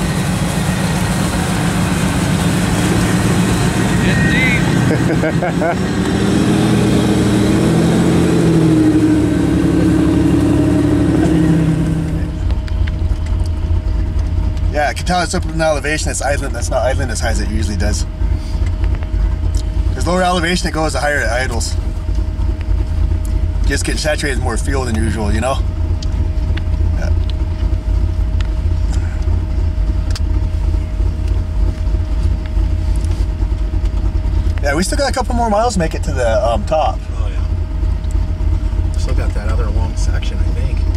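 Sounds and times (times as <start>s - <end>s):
car engine under load in snow: 0.0s - 40.9s
low rough engine rumble: 0.0s - 40.9s
thin steady whine: 0.0s - 40.9s
man talking: 3.8s - 4.8s, 14.7s - 18.1s, 19.9s - 21.8s, 23.6s - 25.6s, 34.6s - 37.5s, 39.0s - 40.9s.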